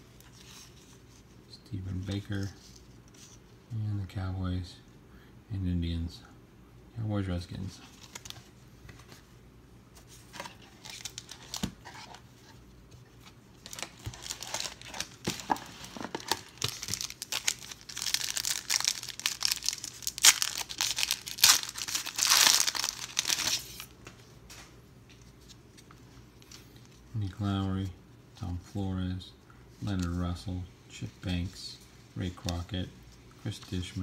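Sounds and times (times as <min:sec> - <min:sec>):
foil wrapper crinkling and tearing: 0:13.7 - 0:23.9.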